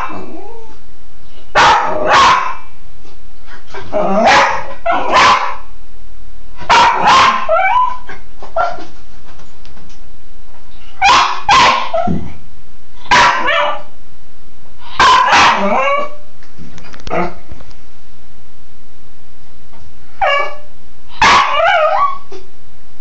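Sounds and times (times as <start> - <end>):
dog yelping: 1.6 - 2.6, 4.1 - 5.6, 6.7 - 8.9, 11.0 - 12.2, 13.1 - 13.9, 15.0 - 16.2, 21.2 - 22.3
dog barking: 1.6 - 2.7, 4.2 - 5.7, 6.6 - 8.9, 11.0 - 12.2, 13.0 - 13.9, 14.9 - 16.2, 20.2 - 22.3.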